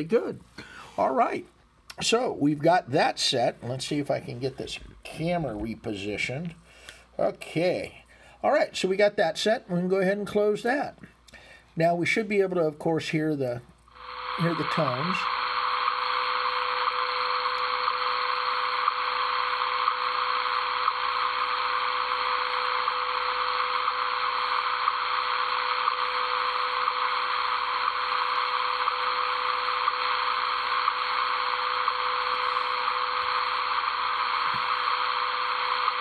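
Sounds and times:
radio static hiss: 0:00.0 - 0:11.1, 0:11.8 - 0:36.0
steady tone: 0:13.9 - 0:36.0.

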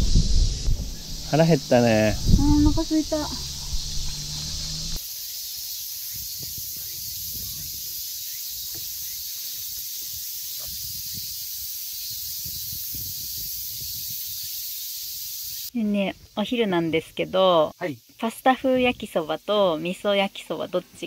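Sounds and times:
water spraying from shower hose: 0:00.0 - 0:15.7.

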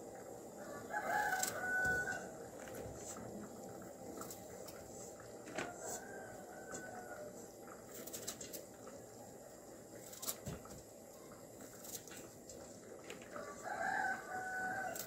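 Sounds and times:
rooster crowing: 0:00.6 - 0:02.4, 0:05.6 - 0:07.4, 0:13.3 - 0:15.0.

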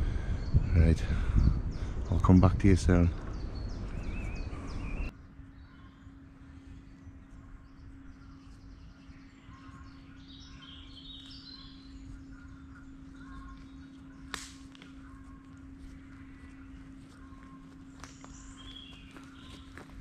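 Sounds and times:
steady low hum: 0:00.0 - 0:20.0
woodland birds singing: 0:00.0 - 0:20.0
sharp crack: 0:14.2 - 0:15.0.

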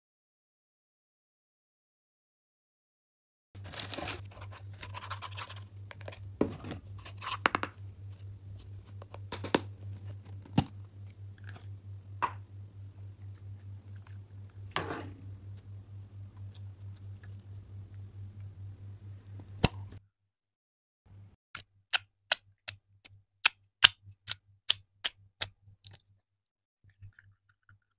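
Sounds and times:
steady low hum: 0:03.6 - 0:20.0.

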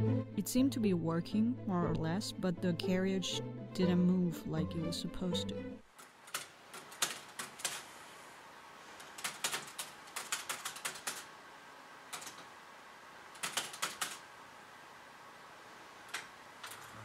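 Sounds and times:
manual typewriter keys clacking: 0:06.0 - 0:07.8, 0:09.1 - 0:11.3, 0:12.1 - 0:12.4, 0:13.4 - 0:14.2.

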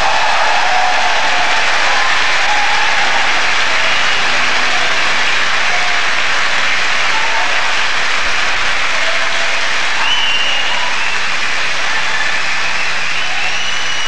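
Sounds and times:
audience applauding and cheering: 0:00.0 - 0:14.0
short whistles: 0:10.0 - 0:11.3, 0:12.6 - 0:14.0.

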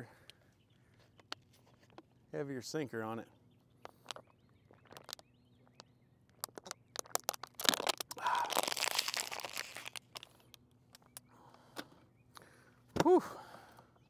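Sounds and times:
rustling and crinkling: 0:00.9 - 0:02.2, 0:03.9 - 0:11.2.

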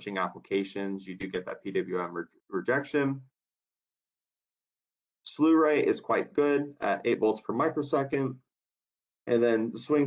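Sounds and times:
person speaking: 0:00.0 - 0:03.3.

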